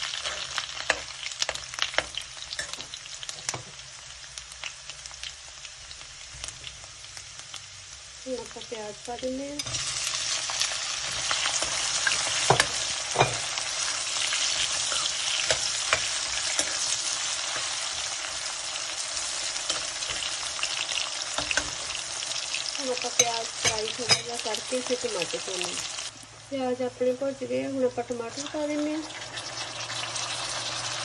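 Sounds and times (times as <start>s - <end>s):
metal spoon scraping a pan: 0.0s - 3.7s, 9.6s - 22.1s
onions sizzling in oil: 0.0s - 31.0s.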